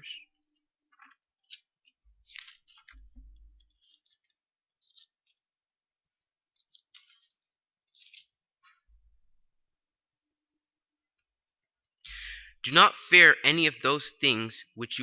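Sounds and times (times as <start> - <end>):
pages being turned: 0.9 - 5.6, 6.5 - 8.9.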